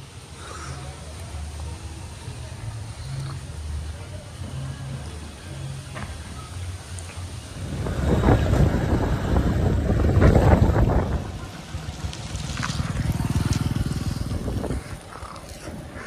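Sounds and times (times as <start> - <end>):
scooter engine running: 7.6 - 16.0
wind buffeting microphone: 7.6 - 16.0.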